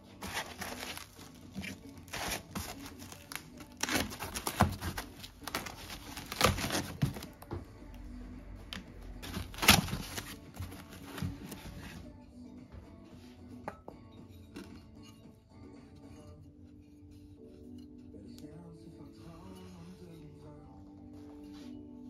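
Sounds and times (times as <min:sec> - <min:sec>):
foam rustling and scraping: 0:00.0 - 0:07.4, 0:09.1 - 0:12.1
background music: 0:00.0 - 0:22.0.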